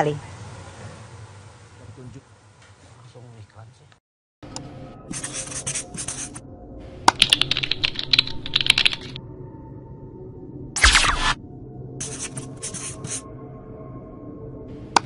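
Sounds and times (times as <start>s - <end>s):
computer keyboard typing: 7.1s - 9.2s
faint music: 12.0s - 13.3s.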